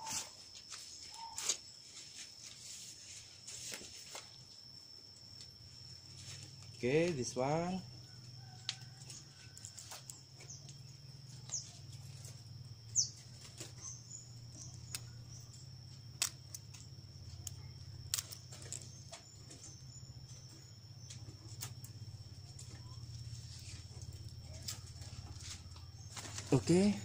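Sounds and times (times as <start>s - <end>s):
bird chirps: 10.4s - 27.0s.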